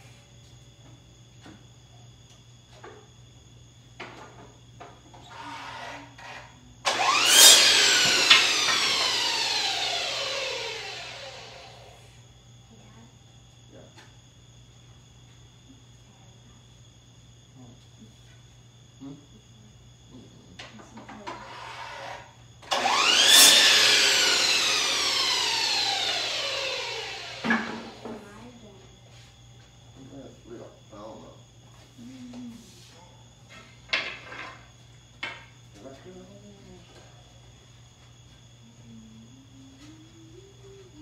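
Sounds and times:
miter saw cutting wood: 5.4 - 12.0, 21.5 - 28.2
saw blade winding down: 5.4 - 12.0, 21.5 - 28.2.

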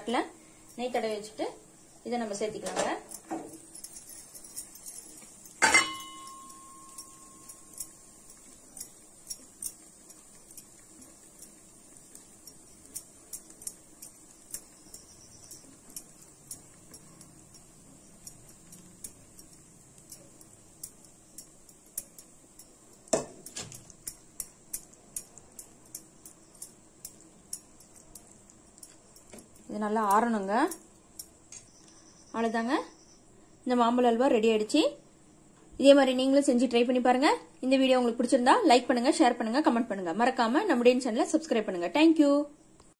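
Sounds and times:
spatula scraping and tapping pan: 0.6 - 32.0.

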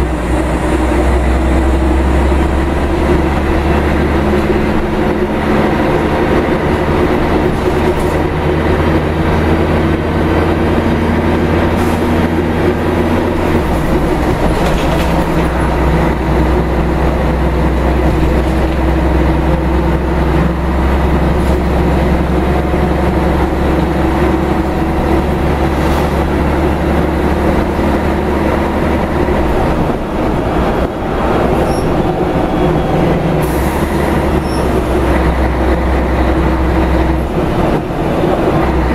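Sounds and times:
bus diesel engine drone: 0.0 - 38.9.

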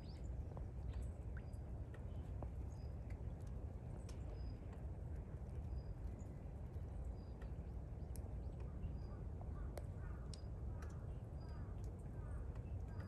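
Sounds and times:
light clicks: 9.7 - 11.0.

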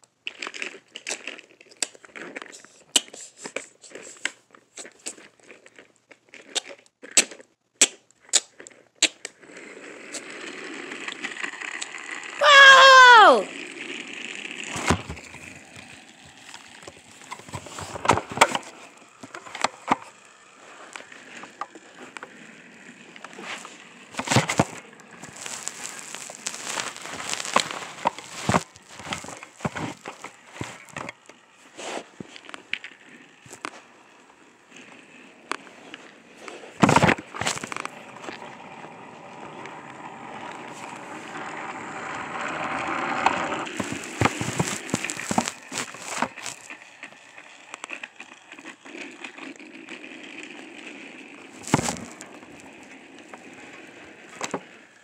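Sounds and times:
toy trains and track clattering: 8.4 - 12.4, 13.5 - 55.0
toy train motor whirring: 9.0 - 12.4, 13.4 - 55.0.

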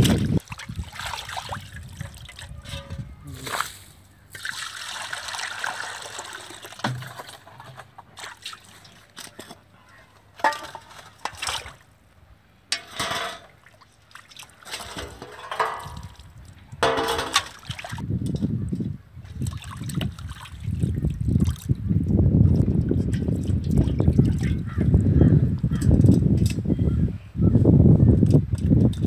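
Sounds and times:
water splashing in a metal basin: 0.0 - 3.0, 4.3 - 9.6, 10.3 - 11.9, 12.7 - 18.5, 19.2 - 21.8, 22.4 - 25.0
steel bowls knocking together: 10.4 - 10.9.

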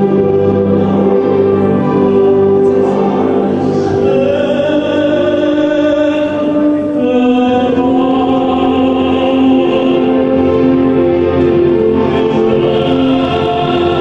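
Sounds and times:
orchestral backing music: 0.0 - 14.0
man singing operatic ballad: 2.4 - 10.8, 11.9 - 14.0.

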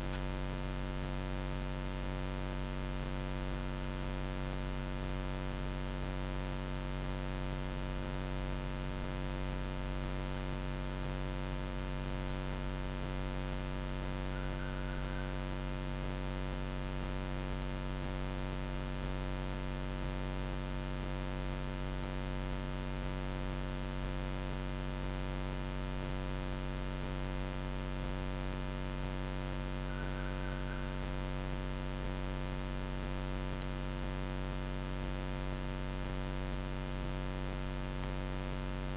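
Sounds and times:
electrical buzzing hum: 0.0 - 38.9
faint short chirps: 29.9 - 31.0.

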